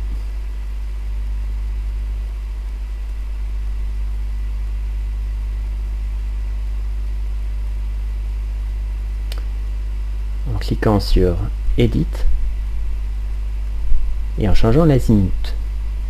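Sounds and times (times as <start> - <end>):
steady low hum: 0.0 - 16.0
faint click: 9.3 - 9.5.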